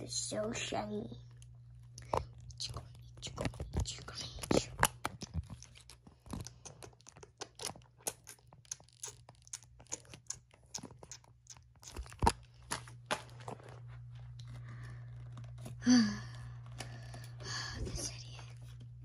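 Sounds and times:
low steady hum: 0.0s - 19.0s
rubbing and scraping of plastic: 1.8s - 19.0s.

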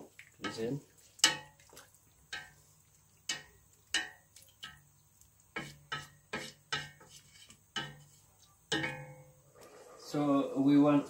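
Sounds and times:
wooden spatula knocking on metal pot: 3.3s - 4.8s, 5.5s - 8.1s, 8.7s - 9.4s.

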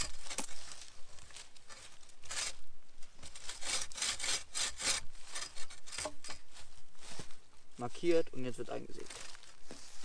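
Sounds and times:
bow saw cutting wood: 2.2s - 2.6s, 3.2s - 6.4s.

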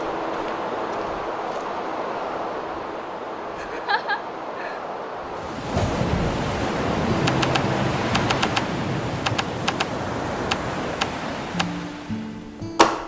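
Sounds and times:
ocean surf breaking: 0.0s - 12.9s
short high ticks: 7.2s - 9.9s.

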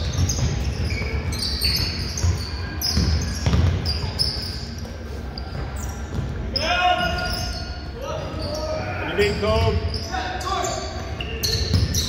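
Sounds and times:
shoes squeaking on floor: 0.0s - 12.0s
basketball bouncing on hardwood: 1.8s - 4.0s.

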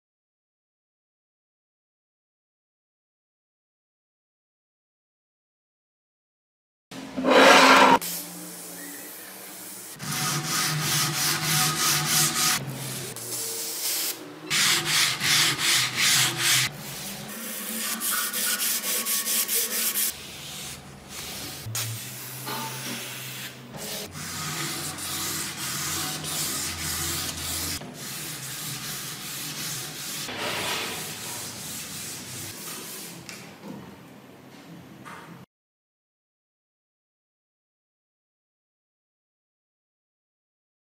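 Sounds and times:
sandpaper scraping steel blade: 7.2s - 8.1s, 10.0s - 16.7s, 17.3s - 33.1s.

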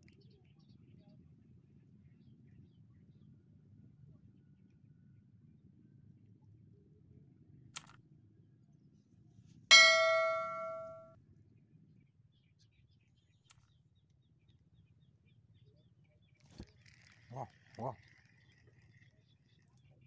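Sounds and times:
bright bell chime: 9.7s - 11.1s.

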